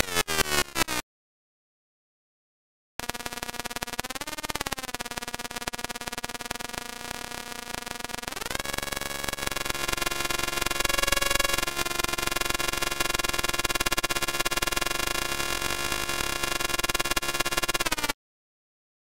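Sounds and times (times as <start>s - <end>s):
synthesized electric arc buzzing: 3.0s - 18.2s.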